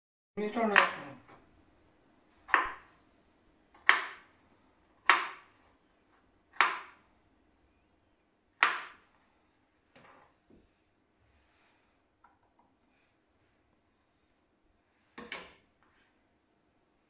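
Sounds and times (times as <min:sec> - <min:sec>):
knife chopping on plastic board: 0:02.5 - 0:02.9, 0:03.8 - 0:04.3, 0:05.0 - 0:05.5, 0:06.5 - 0:07.0, 0:08.6 - 0:09.0.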